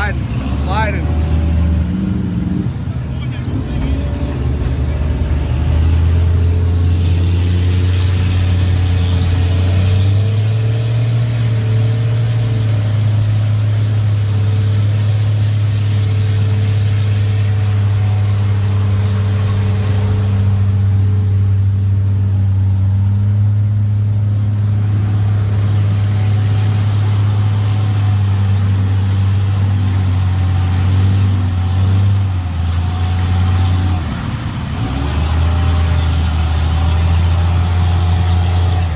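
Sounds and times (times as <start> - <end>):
engine and winch droning under load: 0.0 - 38.9.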